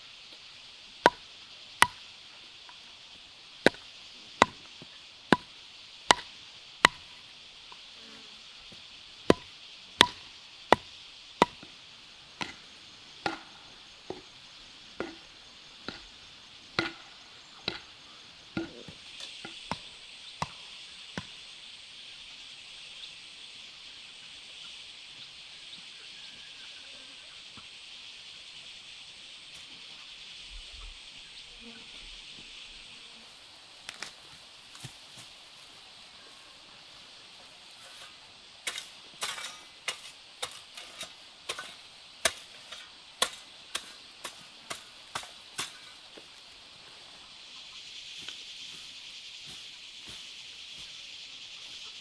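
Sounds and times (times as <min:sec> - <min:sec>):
insects droning: 0:00.0 - 0:52.0
hand tool striking wood: 0:01.0 - 0:01.2, 0:01.8 - 0:02.0, 0:03.6 - 0:03.8, 0:04.4 - 0:04.7, 0:05.3 - 0:05.5, 0:06.1 - 0:07.1, 0:09.3 - 0:11.7, 0:12.4 - 0:12.6, 0:13.2 - 0:14.2, 0:15.0 - 0:15.2, 0:15.9 - 0:16.1, 0:16.8 - 0:17.0, 0:17.6 - 0:17.9, 0:37.8 - 0:46.2.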